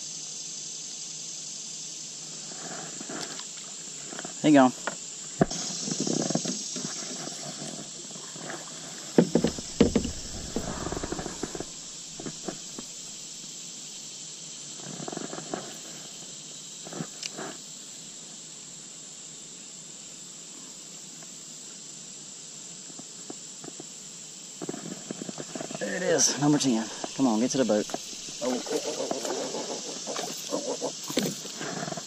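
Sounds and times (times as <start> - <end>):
insect chorus buzzing: 0.0 - 32.0
knocks and rustles in plastic kayak: 5.4 - 13.0, 26.9 - 28.5, 30.2 - 32.0.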